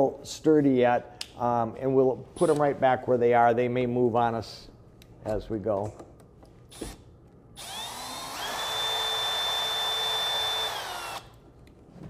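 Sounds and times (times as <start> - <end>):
cordless drill whining: 7.6 - 11.4.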